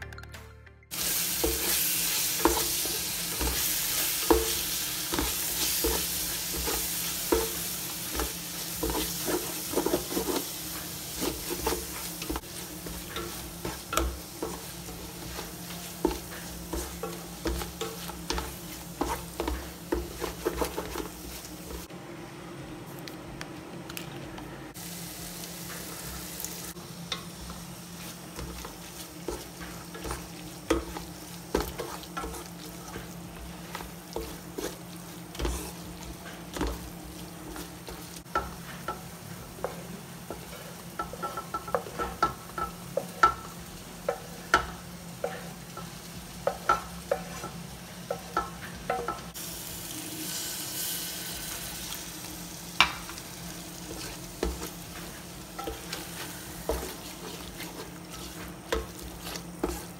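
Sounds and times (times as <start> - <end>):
hissing sizzle: 0.9 - 23.0, 24.7 - 59.9
low frying sizzle: 0.9 - 59.9
spatula knocking and scraping pot: 2.4 - 21.9, 27.1 - 43.5, 53.8 - 59.9.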